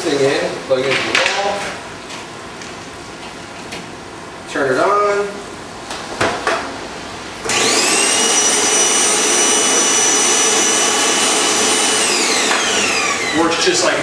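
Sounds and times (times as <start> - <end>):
vacuum cleaner motor whining: 7.4 - 14.0.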